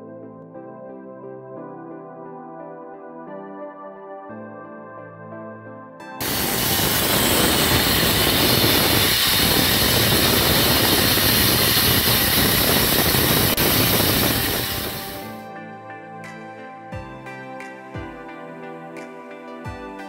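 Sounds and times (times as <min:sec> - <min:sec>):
band saw cutting wood: 0:06.2 - 0:15.2.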